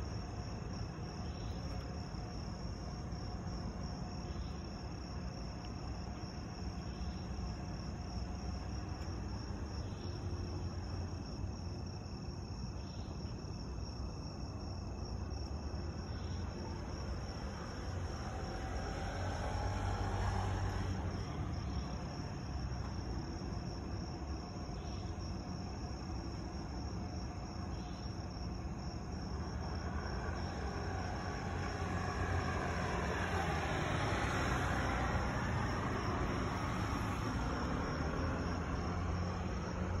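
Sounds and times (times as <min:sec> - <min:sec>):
crickets chirring: 0:00.0 - 0:40.0
low traffic rumble: 0:00.0 - 0:40.0
car passing: 0:14.4 - 0:27.6, 0:28.2 - 0:40.0.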